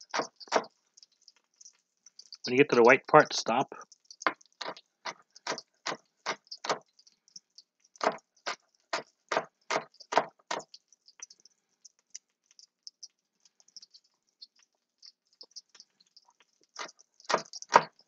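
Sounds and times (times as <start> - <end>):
knife chopping on wooden board: 9.3 - 10.3
faint light ticks: 10.6 - 17.7.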